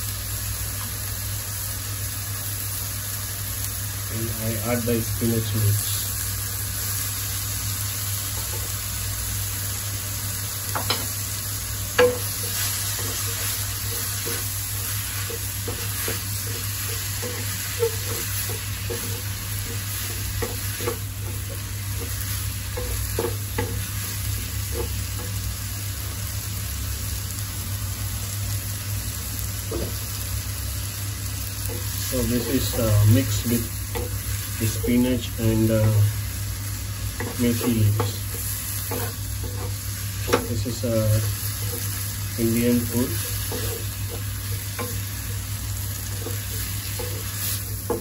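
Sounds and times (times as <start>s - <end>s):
leaves sizzling in a pan: 0.0s - 48.0s
spatula tapping a pan: 10.7s - 11.1s, 11.9s - 24.0s, 33.9s - 34.2s, 43.3s - 45.4s, 46.1s - 48.0s.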